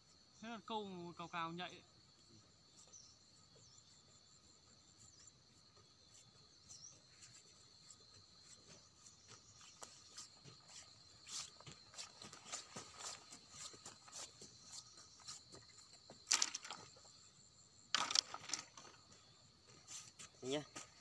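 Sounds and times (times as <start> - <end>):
insects chirring: 0.0 - 21.0.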